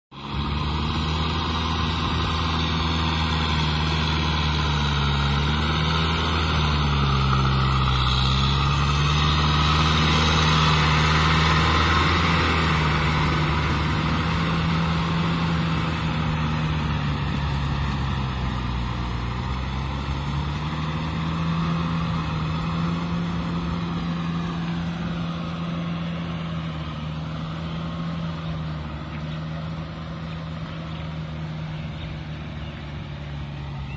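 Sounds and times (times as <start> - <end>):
tractor diesel engine: 0.1 - 33.9
churning mud and water: 0.2 - 33.9.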